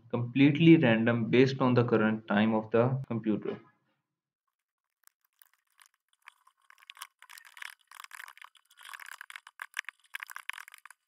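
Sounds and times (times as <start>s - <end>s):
fast computer keyboard typing: 4.9s - 11.0s.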